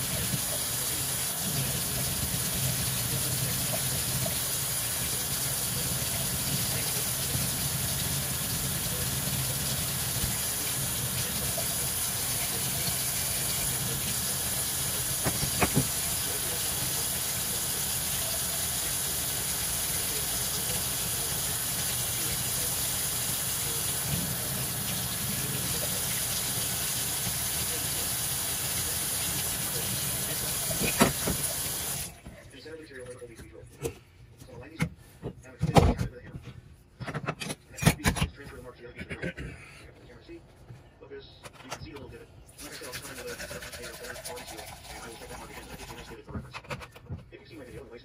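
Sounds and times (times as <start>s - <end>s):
faucet running into sink: 0.0s - 32.2s, 42.6s - 46.2s.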